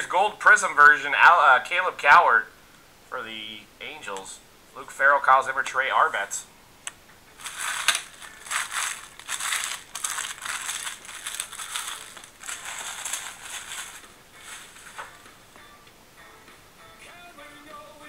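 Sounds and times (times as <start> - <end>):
foil wrappers crinkling: 7.4 - 15.2.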